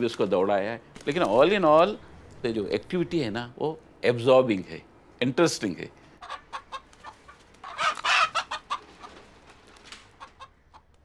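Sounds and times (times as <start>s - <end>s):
rooster squawking: 6.2s - 9.2s
chicken clucking: 6.2s - 9.4s, 10.1s - 10.9s.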